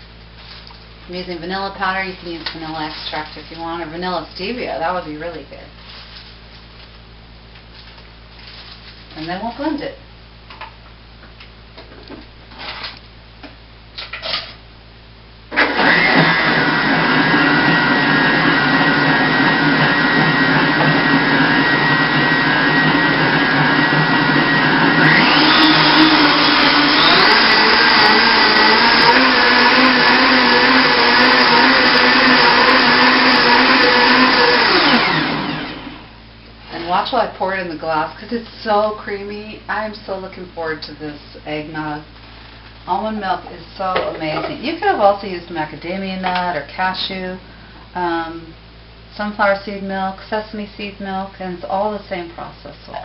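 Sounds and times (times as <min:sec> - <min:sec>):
blender whirring: 0:15.5 - 0:36.1.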